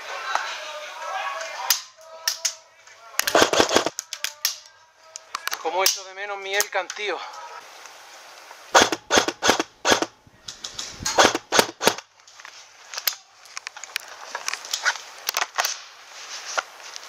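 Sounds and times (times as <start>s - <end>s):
airsoft rifle shots: 3.2s - 3.9s, 8.7s - 10.2s, 11.0s - 12.1s
magazine clicks and knocks: 8.8s - 12.0s.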